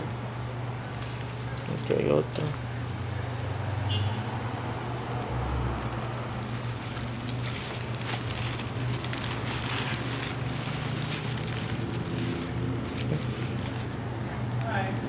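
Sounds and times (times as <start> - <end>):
steady low hum: 0.0 - 15.0
paper and stems rustling: 0.4 - 2.8, 5.8 - 14.1.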